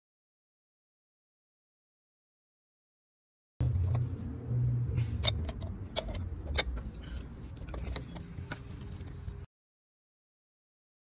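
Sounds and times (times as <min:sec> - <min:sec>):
low steady rumble: 0:03.6 - 0:09.5.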